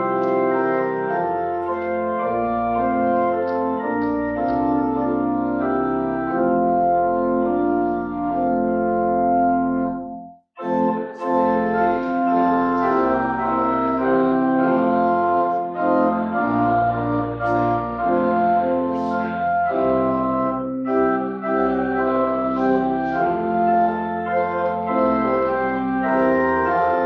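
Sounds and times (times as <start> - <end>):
organ chords: 0.0 - 27.0.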